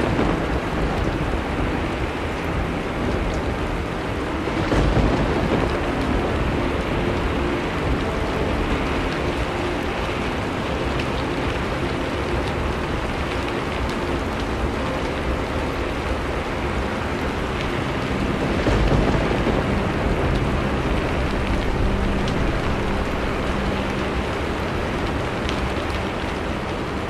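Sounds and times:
low thunder rumble: 0.0 - 10.4, 11.5 - 26.6
raindrop ticks: 0.0 - 27.0
steady rain: 0.0 - 27.0.

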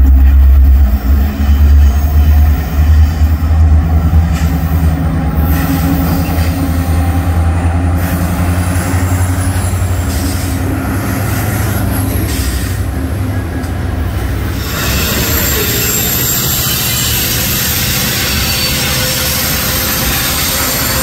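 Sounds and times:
diesel locomotive engines droning: 0.0 - 21.0
train wheels on rails: 0.0 - 21.0.

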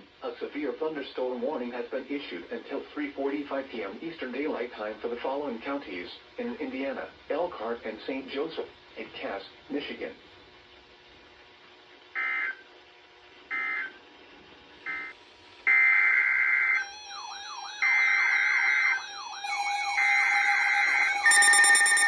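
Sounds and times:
harsh multi-tone alarm beeping: 14.9 - 15.1, 15.7 - 22.0
warbling siren: 15.7 - 22.0
screeching digital data bursts: 16.4 - 22.0
steady alert tone: 16.6 - 22.0.

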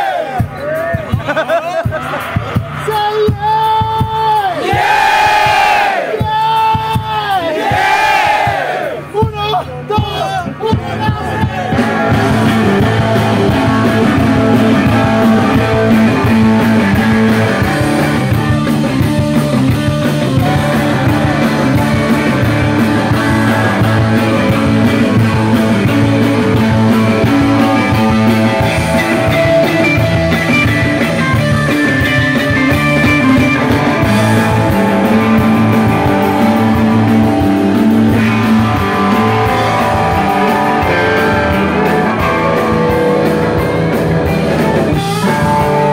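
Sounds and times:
live rock band playing: 0.0 - 45.9.

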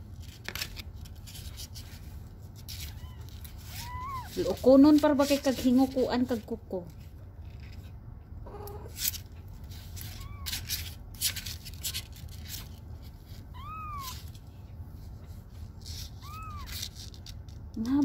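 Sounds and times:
kitten mewing: 2.8 - 4.4, 8.4 - 9.0, 10.0 - 10.9, 13.5 - 14.3, 16.1 - 17.0.

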